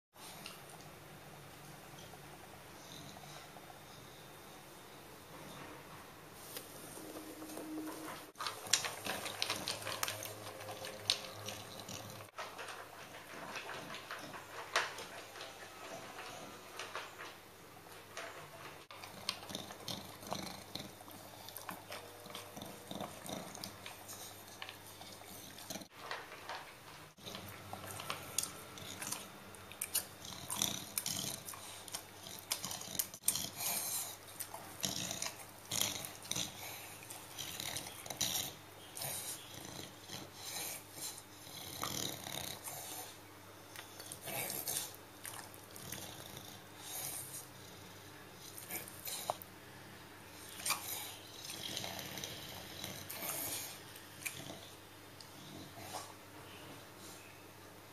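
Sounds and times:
dog crunching dry kibble: 0:08.4 - 0:17.4.

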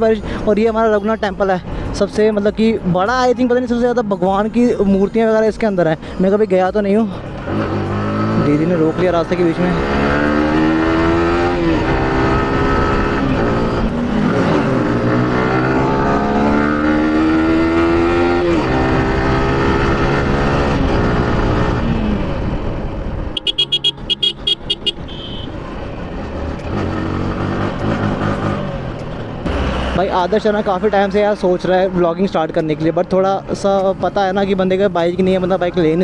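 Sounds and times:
wind and road noise: 0:00.0 - 0:36.0
motorcycle engine revving: 0:07.4 - 0:31.8.

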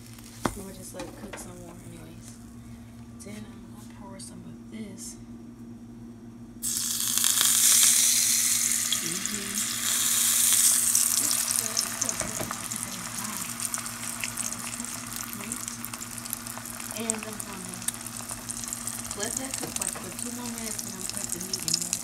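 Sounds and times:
eggs sizzling in hot fat: 0:00.0 - 0:00.7, 0:06.6 - 0:22.0.

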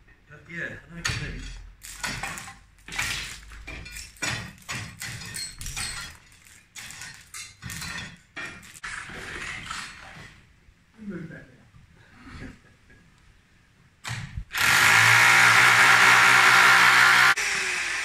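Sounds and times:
broken masonry clattering: 0:01.0 - 0:10.5.

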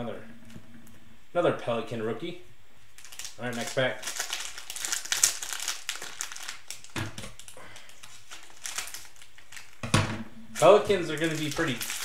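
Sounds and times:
plastic wrapper crinkling: 0:03.0 - 0:09.8, 0:10.6 - 0:12.0.

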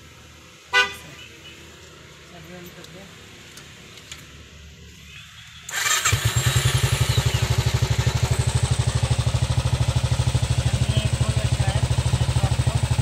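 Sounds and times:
electric starter cranking: 0:05.7 - 0:08.5
motorcycle engine idling: 0:05.7 - 0:13.0.

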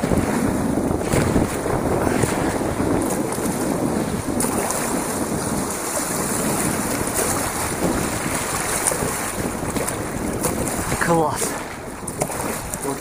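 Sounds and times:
river current rushing and splashing: 0:00.0 - 0:13.0
wind buffeting microphone: 0:00.0 - 0:13.0.

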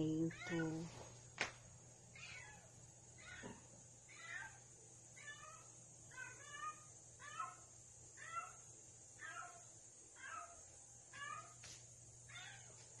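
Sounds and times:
cat meowing: 0:02.2 - 0:04.6.

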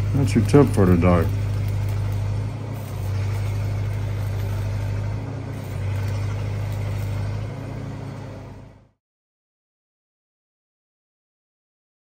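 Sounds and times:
steady engine hum: 0:00.0 - 0:09.0
welding arc crackling and hissing: 0:00.0 - 0:09.0.

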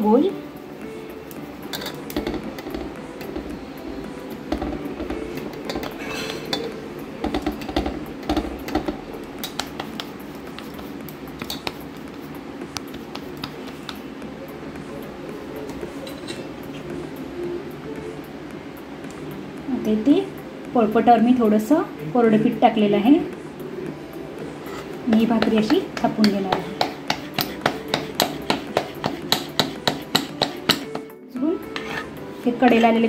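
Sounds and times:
hands kneading dough: 0:07.5 - 0:14.2, 0:24.6 - 0:31.1.

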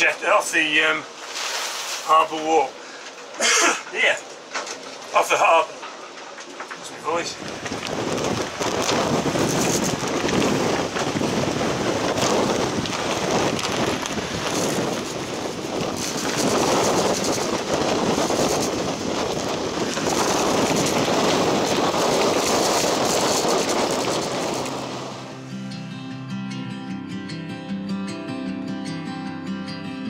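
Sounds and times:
gusty wind buffeting microphone: 0:02.1 - 0:25.6.

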